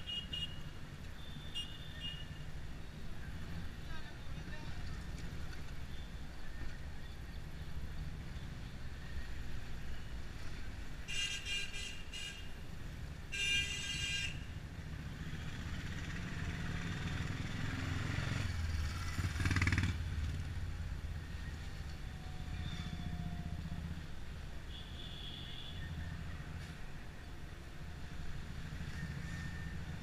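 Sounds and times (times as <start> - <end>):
car horn honking: 0.0 - 0.6, 13.3 - 14.5, 24.7 - 25.9
car engine and road noise: 0.0 - 30.0
city traffic: 0.0 - 30.0.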